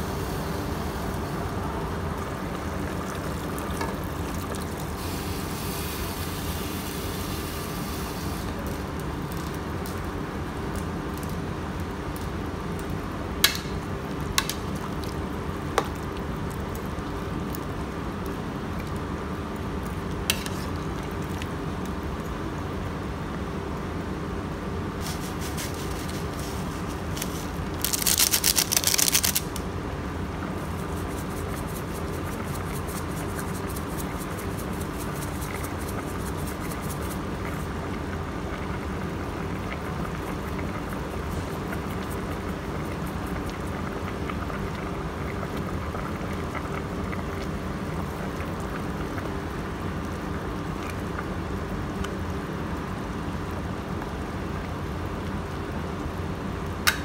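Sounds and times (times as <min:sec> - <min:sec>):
steady hum: 0:00.0 - 0:53.6.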